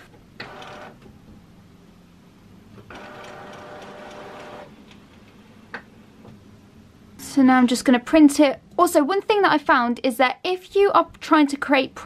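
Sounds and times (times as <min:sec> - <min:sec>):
printer feed motor whirring: 0:00.4 - 0:01.0, 0:02.8 - 0:04.7.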